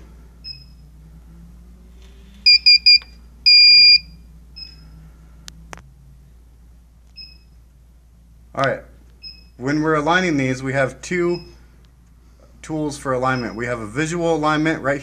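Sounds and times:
high buzzer beeps: 2.4 - 4.8.

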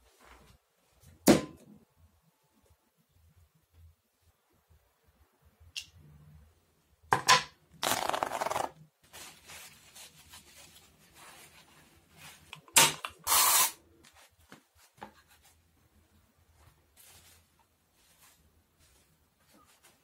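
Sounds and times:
tissue paper tearing and crinkling: 7.8 - 12.4
paper rustling: 7.8 - 12.5.

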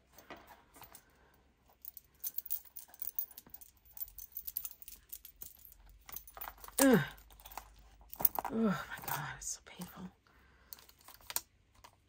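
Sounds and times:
notebook and charms rattling: 0.0 - 9.5, 10.6 - 12.0.

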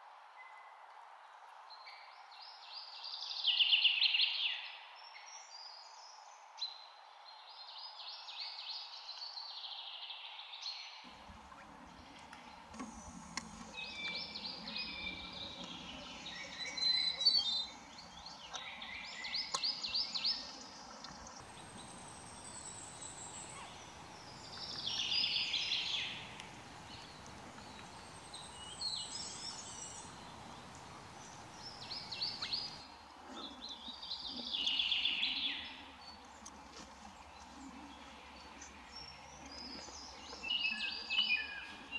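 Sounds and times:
background hiss: 11.0 - 41.9.

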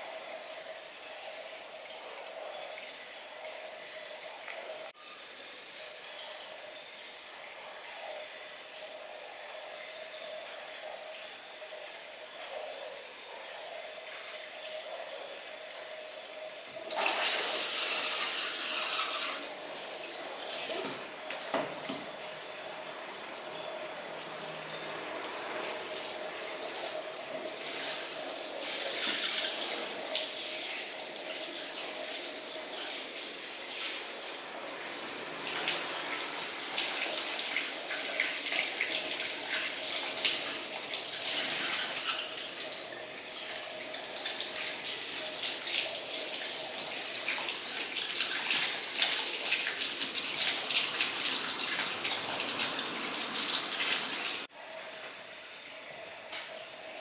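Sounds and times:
shower head spraying water on hair: 16.9 - 22.2, 25.2 - 42.7.

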